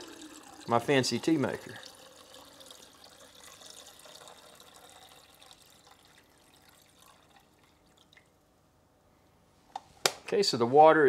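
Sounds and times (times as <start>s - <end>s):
water pouring: 0.0s - 8.3s
water dripping: 0.0s - 8.4s.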